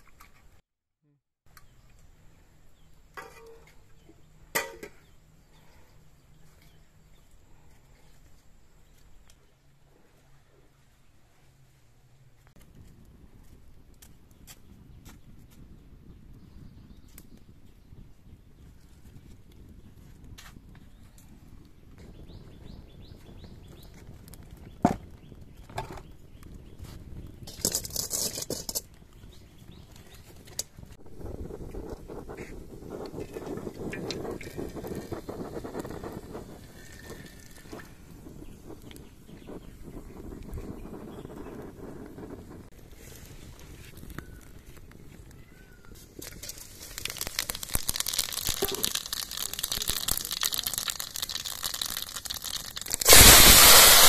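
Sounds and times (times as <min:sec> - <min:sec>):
wood fire burning: 0:12.4 - 0:54.0
sharp crack of fire: 0:22.8 - 0:54.0
metal pan scraping clatter on stone: 0:27.5 - 0:28.9.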